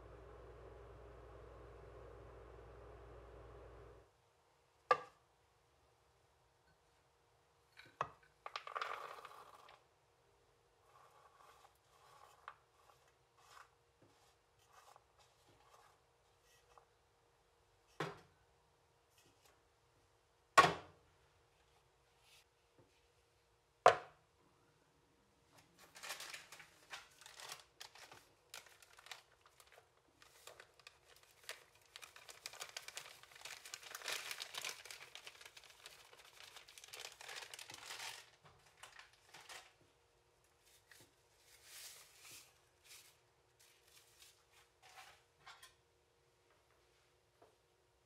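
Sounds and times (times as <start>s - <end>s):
plastic bag crinkling: 25.8s - 39.8s.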